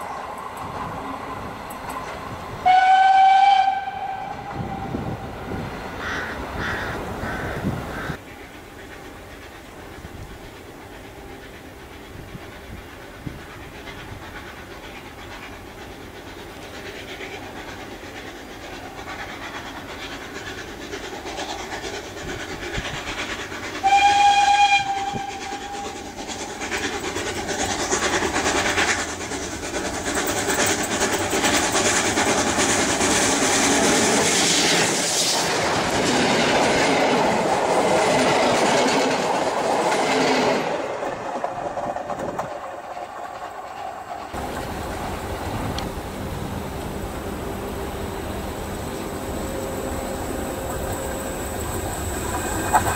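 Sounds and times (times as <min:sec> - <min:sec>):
steam locomotive approaching: 0:00.0 - 0:52.9
short steam whistle: 0:02.6 - 0:05.1, 0:23.8 - 0:26.0
train wheels clattering on rails: 0:03.7 - 0:46.0, 0:50.2 - 0:52.9.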